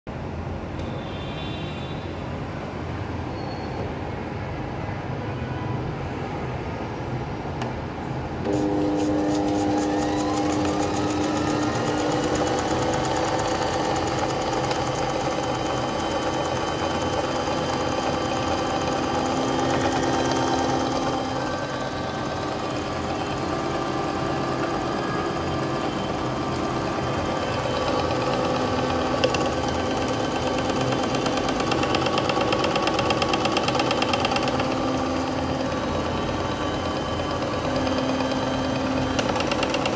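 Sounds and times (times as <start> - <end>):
click: 0.8 - 1.0, 7.6 - 7.8
appliance motor whining: 8.4 - 39.9.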